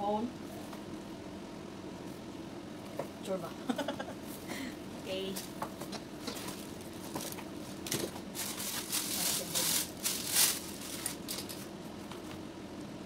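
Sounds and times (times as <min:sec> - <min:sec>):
packaging rustling and crinkling: 0:06.2 - 0:12.3.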